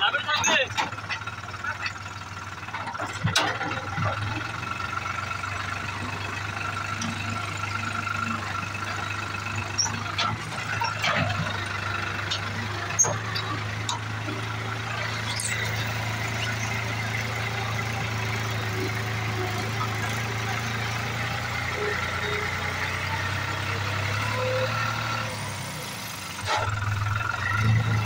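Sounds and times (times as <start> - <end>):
tractor engine idling: 0.0 - 28.0
sharp clicks and knocks: 9.9 - 14.2.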